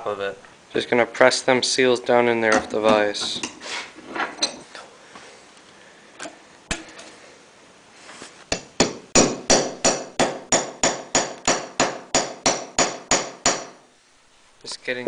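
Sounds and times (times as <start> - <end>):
hammer striking metal: 8.6 - 13.8.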